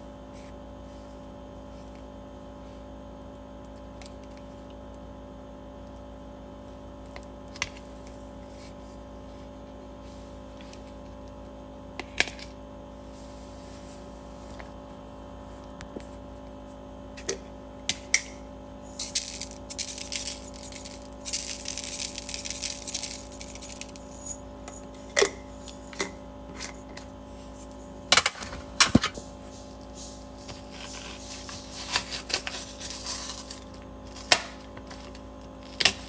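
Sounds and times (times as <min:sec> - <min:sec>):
faint steady hum: 0:00.0 - 0:36.0
glass shaker rattling: 0:18.9 - 0:26.0.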